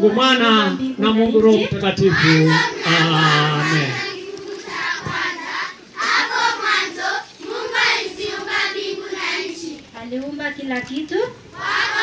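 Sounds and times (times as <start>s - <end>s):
children singing together: 2.1s - 9.9s, 11.5s - 12.0s.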